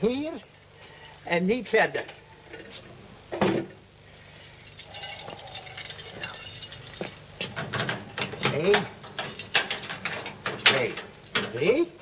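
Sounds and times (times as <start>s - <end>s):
key rattling in door lock: 4.7s - 11.8s.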